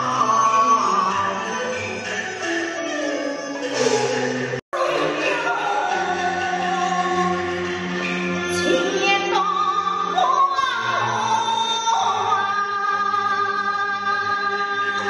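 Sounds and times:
opera singing with long notes: 0:04.8 - 0:15.0.

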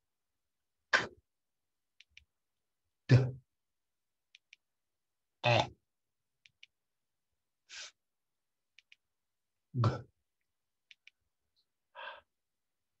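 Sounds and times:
pairs of short clicks: 0:08.8 - 0:09.0, 0:10.9 - 0:11.2.

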